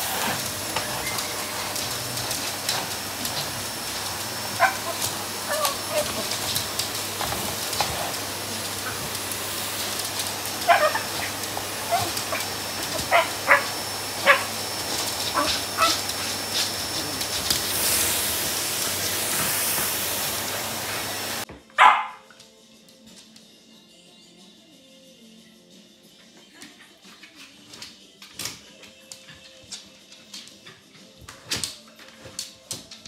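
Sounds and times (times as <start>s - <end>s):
vacuum cleaner drone: 0.0s - 21.5s
dog barking loudly: 4.5s - 6.2s, 10.6s - 14.6s, 15.3s - 16.0s, 21.8s - 22.2s
small dog yapping: 4.6s - 6.2s, 10.6s - 14.6s, 15.3s - 16.0s.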